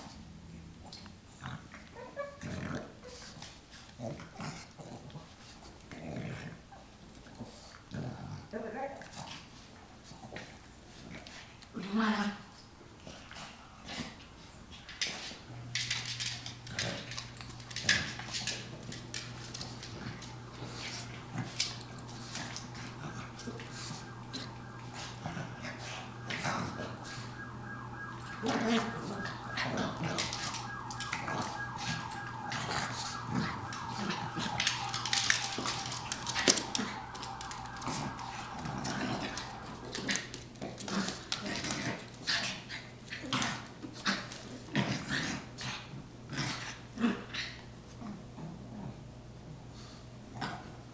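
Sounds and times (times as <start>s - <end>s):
dogs growling snorting and whining: 0.0s - 8.5s, 40.0s - 49.1s
dogs scuffling: 13.2s - 27.4s, 28.1s - 45.3s.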